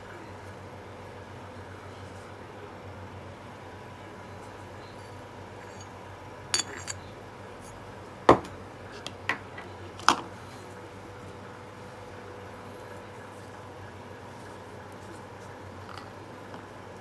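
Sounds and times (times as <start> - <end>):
glass clinks and knocks: 6.6 - 7.0.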